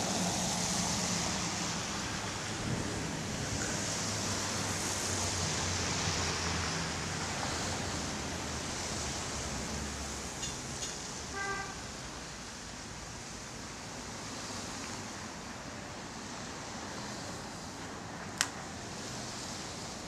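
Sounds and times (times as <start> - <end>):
traffic noise: 0.0 - 20.0
car horn toot: 11.3 - 11.8.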